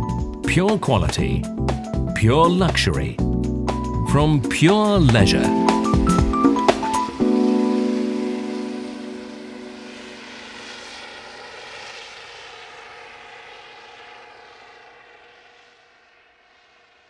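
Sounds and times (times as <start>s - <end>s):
background music: 0.0s - 11.1s
helicopter flying overhead: 4.5s - 17.0s.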